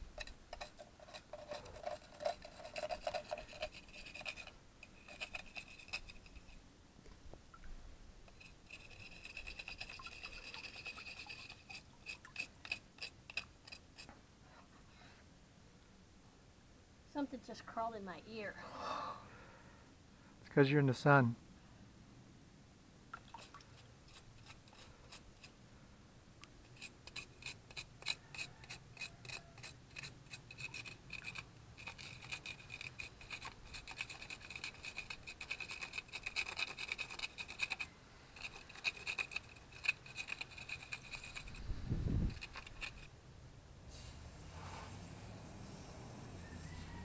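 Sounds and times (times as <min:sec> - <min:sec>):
scratchy scraping strokes: 0:00.0 - 0:06.6, 0:08.3 - 0:14.2, 0:23.3 - 0:25.6, 0:26.6 - 0:43.1, 0:43.9 - 0:47.0.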